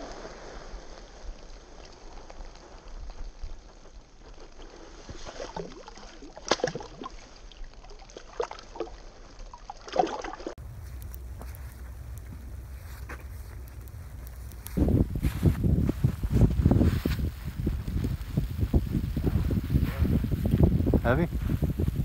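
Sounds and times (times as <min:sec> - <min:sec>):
short splashes: 0:05.0 - 0:10.6
water sloshing: 0:05.0 - 0:10.6
wind rumble on microphone: 0:10.6 - 0:22.0.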